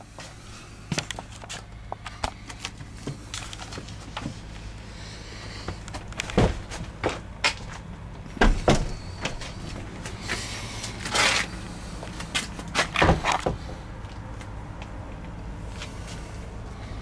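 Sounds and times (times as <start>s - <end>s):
sharp knocks and scuffs: 5.7s - 11.5s
footsteps on gravel and concrete: 9.2s - 16.2s.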